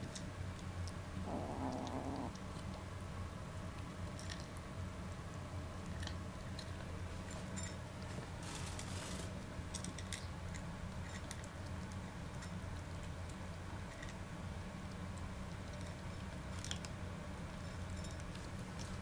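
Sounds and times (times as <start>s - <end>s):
kitten crunching dry kibble: 0.0s - 19.0s.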